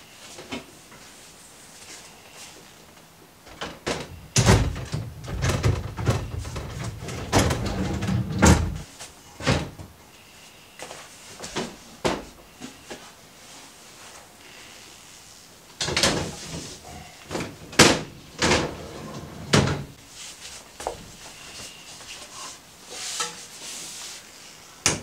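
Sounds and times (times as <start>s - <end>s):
drawer scraping on metal runners: 4.4s - 8.9s, 17.4s - 20.0s.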